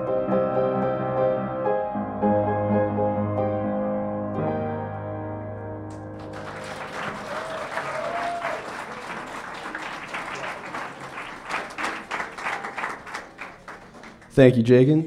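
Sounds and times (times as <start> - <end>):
piano chord: 0.0 - 7.3
audience clapping: 5.9 - 14.6.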